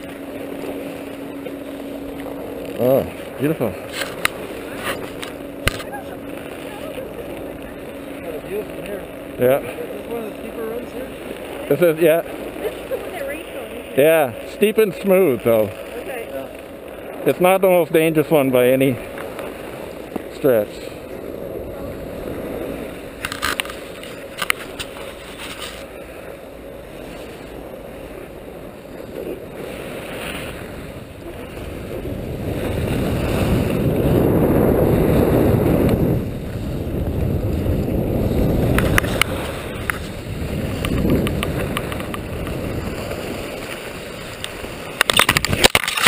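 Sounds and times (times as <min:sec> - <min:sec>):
skis scraping on snow: 0:00.0 - 0:46.0
wind rushing over microphone: 0:00.0 - 0:46.0
camera knocking in snow: 0:40.7 - 0:42.6.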